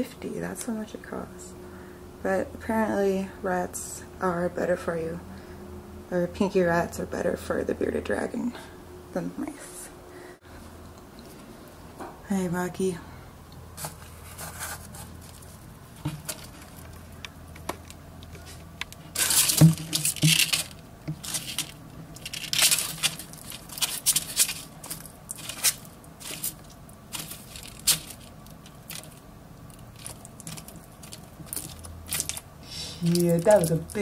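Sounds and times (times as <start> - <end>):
claws scraping on cardboard: 13.8 - 15.5.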